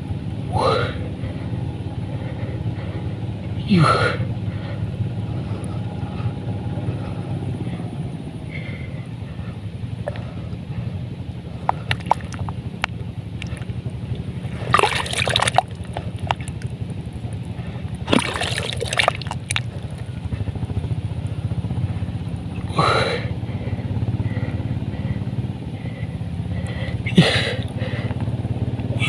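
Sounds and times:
low engine hum: 0:00.0 - 0:29.0
muddy water sloshing and splashing: 0:08.5 - 0:20.6, 0:25.8 - 0:28.1.

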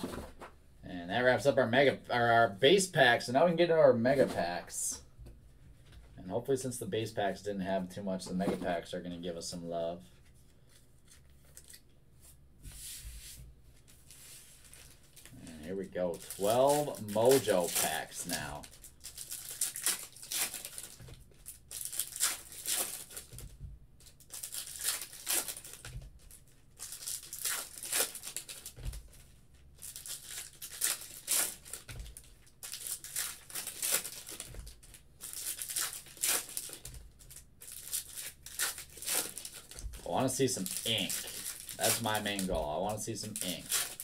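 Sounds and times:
foil wrappers tearing and crinkling: 0:14.6 - 0:23.4, 0:24.0 - 0:44.0.

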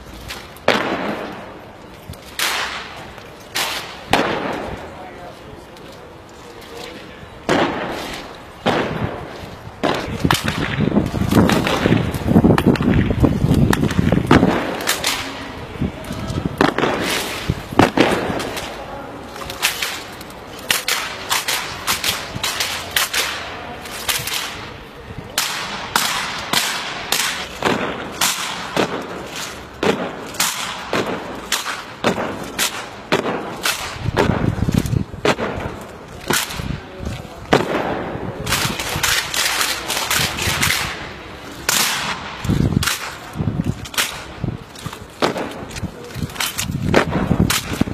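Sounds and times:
rifle butts and boots striking pavement: 0:00.2 - 0:05.0, 0:07.4 - 0:15.6, 0:16.2 - 0:18.8, 0:25.4 - 0:47.9.

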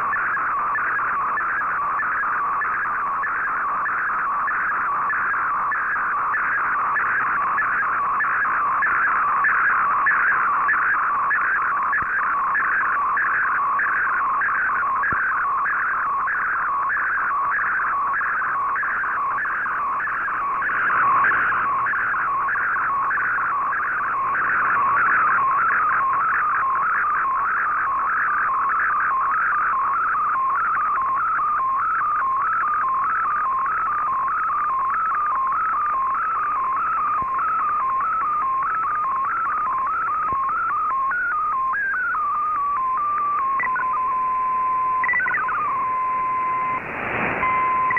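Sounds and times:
rush of radio noise: 0:00.0 - 0:32.8, 0:39.8 - 0:47.9
warbling whistling digital signal: 0:00.1 - 0:29.0, 0:40.6 - 0:47.9.

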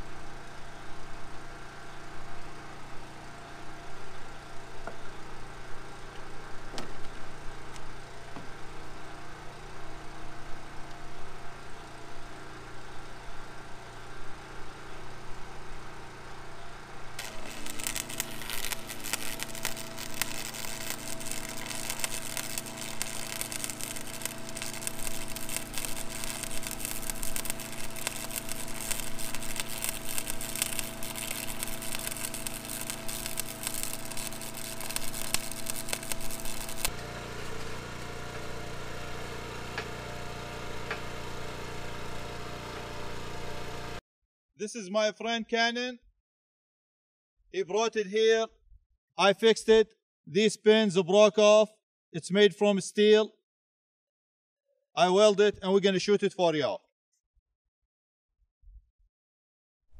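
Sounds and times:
engine humming: 0:01.6 - 0:44.0
arc welding crackle: 0:17.1 - 0:44.0.

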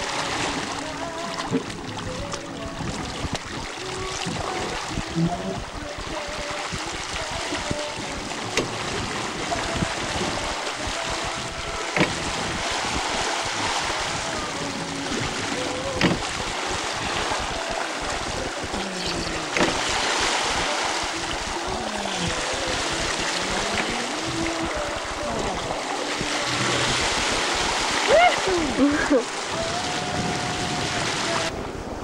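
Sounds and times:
seawater rushing and splashing: 0:00.0 - 0:32.0
wind buffeting microphone: 0:00.0 - 0:32.0.

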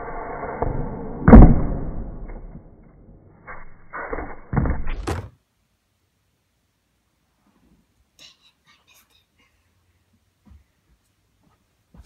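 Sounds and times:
loud sharp bang: 0:00.6 - 0:02.8.

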